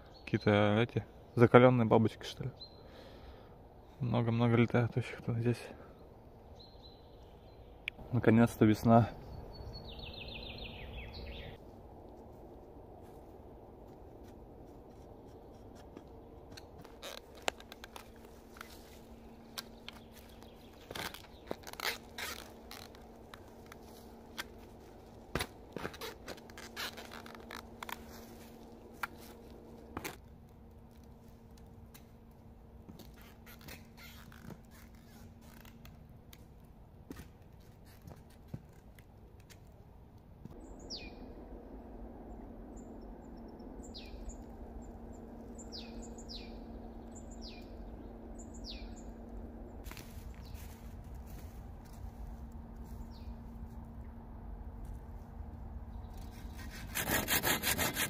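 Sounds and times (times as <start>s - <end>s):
bird whistling: 40.6s - 41.2s, 45.6s - 47.8s, 48.4s - 49.1s.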